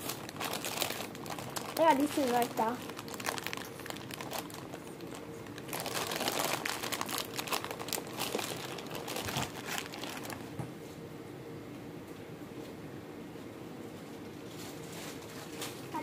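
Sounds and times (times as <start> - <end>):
plastic bag crinkling: 0.0 - 10.6
faint steady hum: 0.0 - 16.0.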